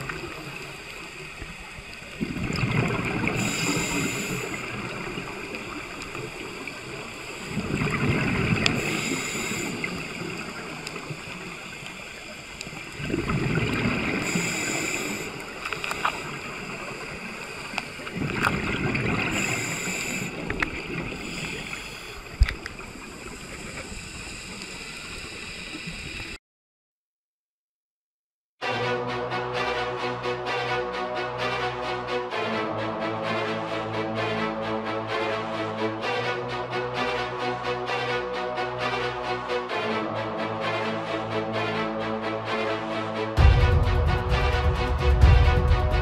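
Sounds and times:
bubbles gurgling: 0.0 - 21.5
scuba regulator breathing: 3.0 - 26.4.

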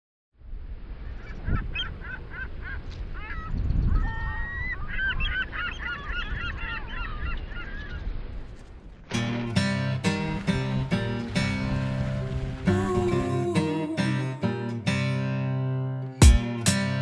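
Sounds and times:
wind and sea rushing: 0.4 - 14.4
seabirds calling: 1.0 - 8.4.

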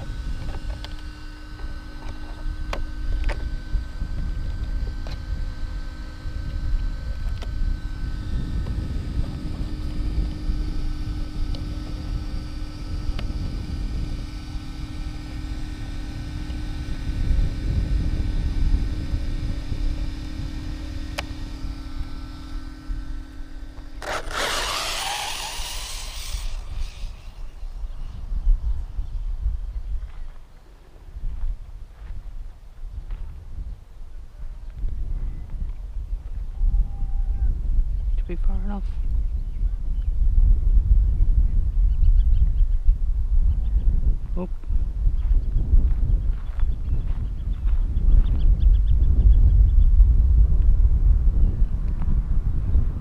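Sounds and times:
electric motor whining: 0.0 - 30.5
wind buffeting microphone: 0.0 - 53.0
tyres on dirt: 20.4 - 27.6.

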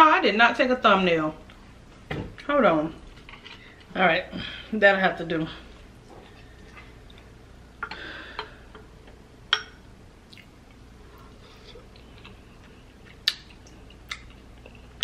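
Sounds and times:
spoon clinking glass bowl: 9.5 - 9.8.

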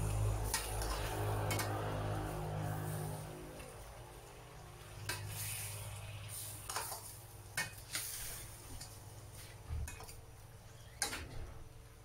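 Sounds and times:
chicken sizzling in pan: 5.0 - 8.9.

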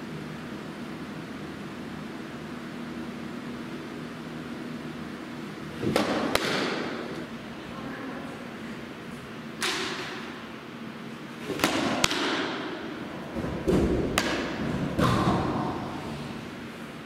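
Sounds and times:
softballs striking gloves: 5.8 - 7.0, 11.5 - 12.8, 13.4 - 15.8.

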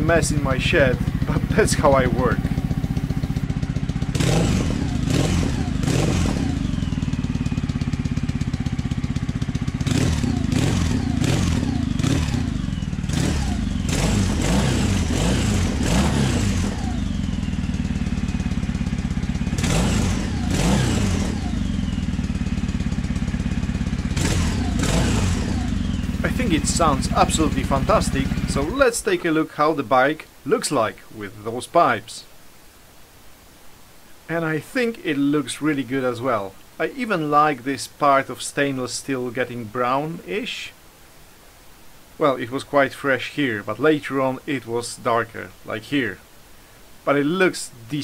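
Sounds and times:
motorcycle engine idling and revving: 0.0 - 28.8.

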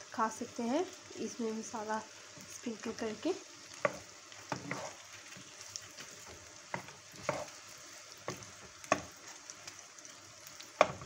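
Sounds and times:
eggplant sizzling in a pan: 0.0 - 11.0
spatula knocking against pan: 8.3 - 9.1.

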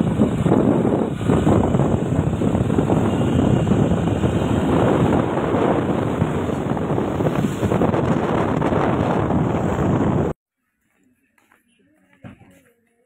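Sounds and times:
passing traffic: 0.0 - 10.4
wind buffeting microphone: 0.0 - 10.4.

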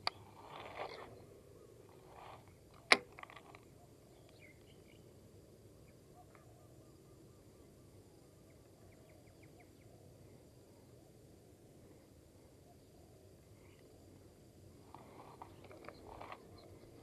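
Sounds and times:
faint bird and insect calls: 0.0 - 17.0.

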